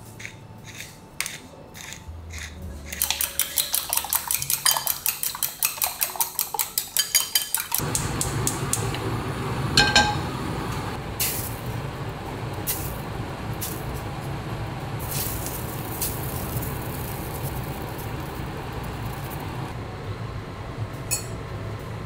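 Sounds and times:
utensil beating eggs in glass bowl: 0.7 - 8.0
gas stove burner hissing: 7.8 - 19.8
metal frying pan clanking on grate: 9.8 - 10.3.

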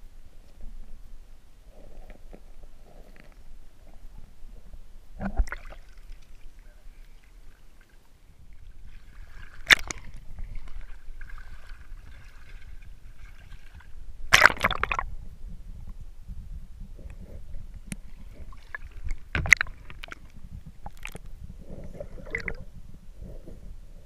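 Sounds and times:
water sloshing and gurgling: 1.8 - 15.2, 17.0 - 23.6
sharp splashes: 14.3 - 15.0.

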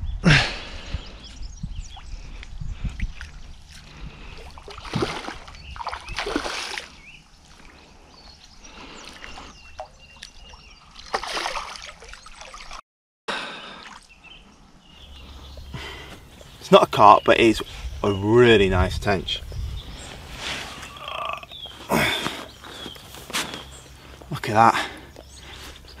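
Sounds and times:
fish splashing in water: 4.4 - 7.0, 9.1 - 12.8.

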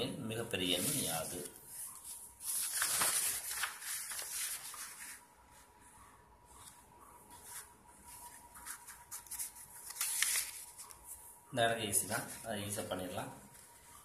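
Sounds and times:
paper rustling: 0.6 - 5.7, 6.5 - 11.3.

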